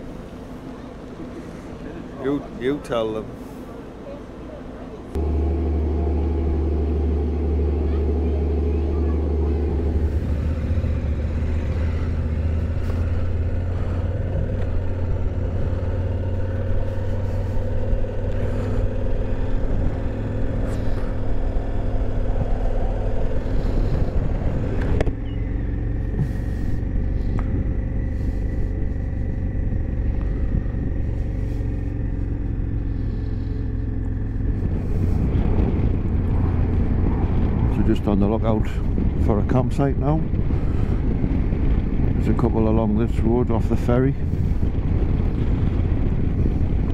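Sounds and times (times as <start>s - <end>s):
ferry engines underway: 0.0s - 46.9s
motorcycle riding at road speed: 0.0s - 46.9s
wind on microphone: 7.9s - 46.9s.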